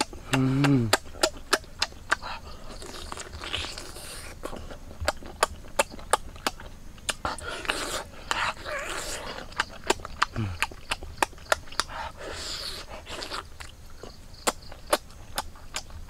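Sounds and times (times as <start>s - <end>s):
wet lip smacks and chewing: 0.0s - 16.0s
heavy breathing: 10.3s - 10.6s.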